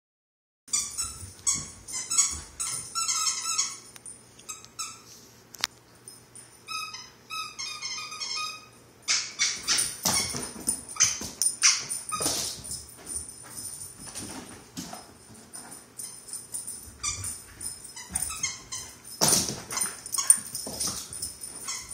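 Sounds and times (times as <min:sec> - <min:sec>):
rubber squeaky toy squeaking: 0:06.7 - 0:10.3.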